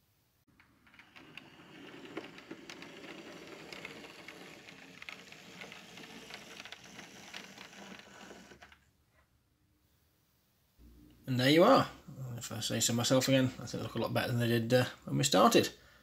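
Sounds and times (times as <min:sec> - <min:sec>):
wheels clicking on rails: 0:00.6 - 0:08.8
model locomotive whirring: 0:00.8 - 0:08.8.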